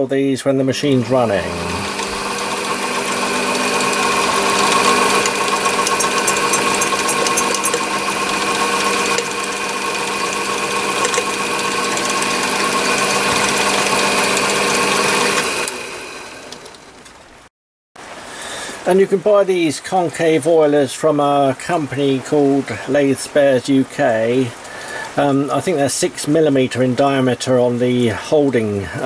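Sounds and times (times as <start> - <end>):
lathe spinning down: 0.8 - 17.0
lathe motor hum and whine: 1.0 - 17.0.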